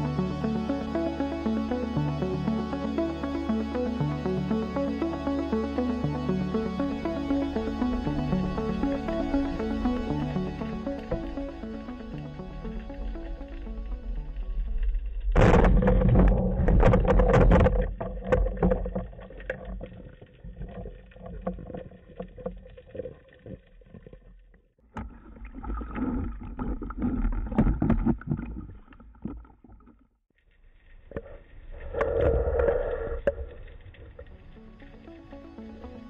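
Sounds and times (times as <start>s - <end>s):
water sloshing and rushing: 7.0s - 30.1s
knocks and crackles: 15.2s - 30.0s.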